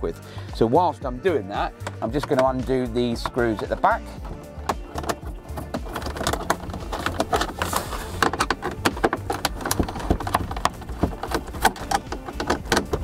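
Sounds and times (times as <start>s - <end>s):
screwdriver clicking on plastic: 4.7s - 13.0s.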